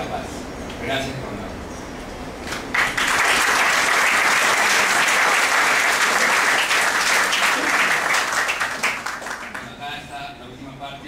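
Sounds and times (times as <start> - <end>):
audience applauding: 2.7 - 9.7.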